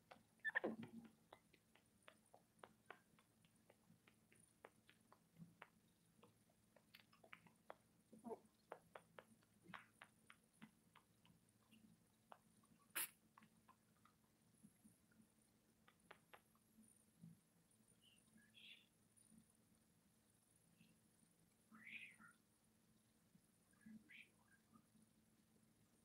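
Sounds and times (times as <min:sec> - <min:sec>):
monkeys soft clicks and smacks: 0:00.0 - 0:17.4
monkey squeak: 0:00.4 - 0:00.8.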